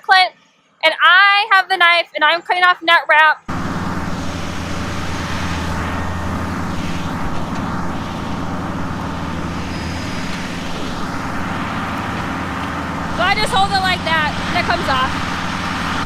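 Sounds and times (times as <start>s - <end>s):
tractor and hay grinder droning: 3.5s - 16.0s.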